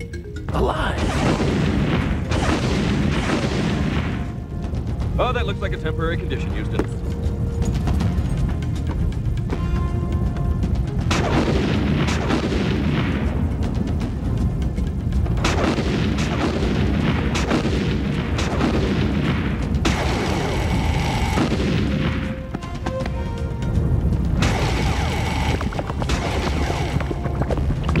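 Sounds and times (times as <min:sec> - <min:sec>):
background music: 0:00.0 - 0:28.0
cartoon explosion booms: 0:01.0 - 0:04.3
laser blasts: 0:01.0 - 0:04.3, 0:24.4 - 0:27.4.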